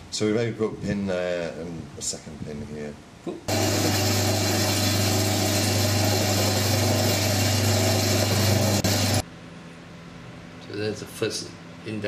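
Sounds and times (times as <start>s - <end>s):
drill press boring wood: 3.5s - 9.2s.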